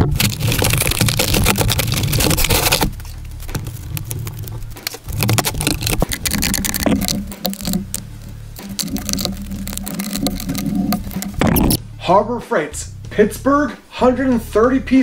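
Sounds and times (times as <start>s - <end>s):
plastic case scraping cardboard: 0.0s - 11.8s.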